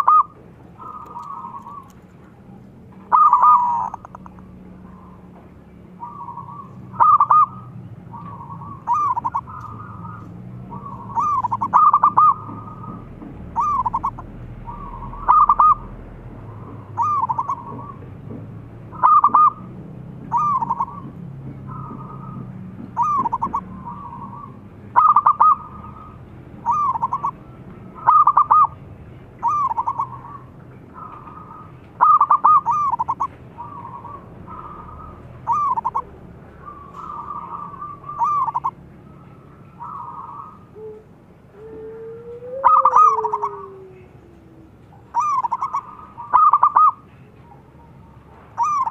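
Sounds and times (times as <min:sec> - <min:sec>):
dove cooing: 0:00.0 - 0:28.8, 0:29.4 - 0:48.9.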